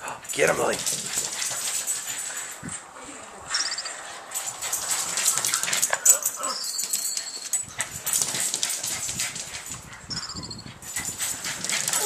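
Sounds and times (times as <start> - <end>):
small dog whining and barking: 6.0 - 7.7.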